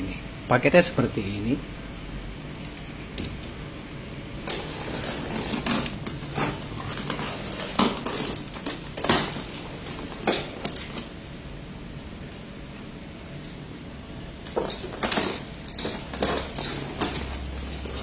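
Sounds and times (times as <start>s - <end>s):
box cutter slitting tape: 4.4s - 11.1s, 14.5s - 18.0s.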